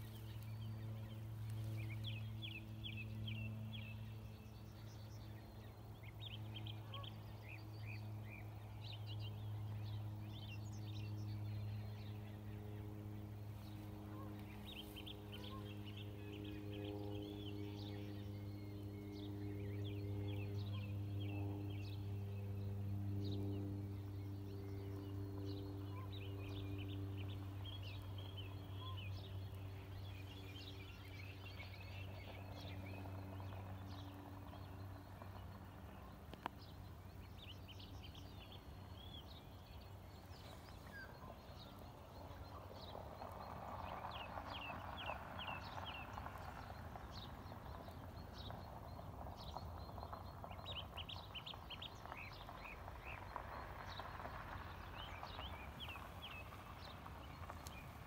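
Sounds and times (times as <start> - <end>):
steady low hum: 0.0 - 58.0
small birds chirping: 23.4 - 58.0.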